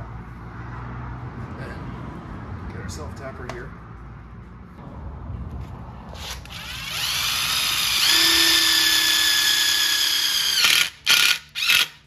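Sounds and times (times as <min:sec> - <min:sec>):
cordless drill whining: 0:06.2 - 0:12.0.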